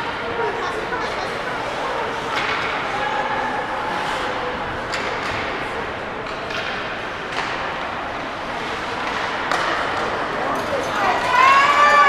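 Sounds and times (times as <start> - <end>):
arena crowd chatter: 0.0 - 12.0
hockey sticks and puck clacking: 1.0 - 12.0.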